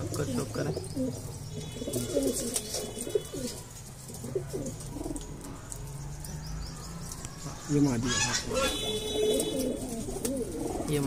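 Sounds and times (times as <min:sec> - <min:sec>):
pigeons cooing: 0:00.0 - 0:11.0.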